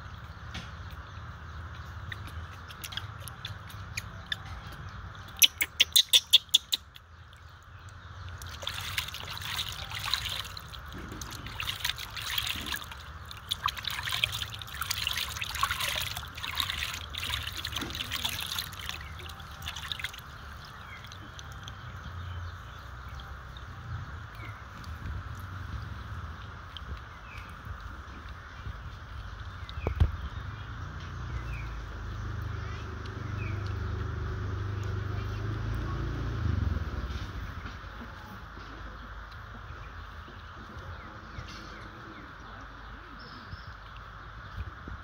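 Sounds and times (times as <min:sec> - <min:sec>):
water splashing in a plastic basin: 0:00.3 - 0:04.6, 0:06.7 - 0:37.8.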